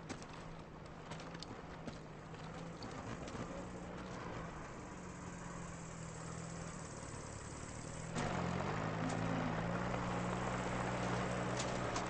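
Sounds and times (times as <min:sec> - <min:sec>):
vehicle engine idling: 0:02.4 - 0:12.0.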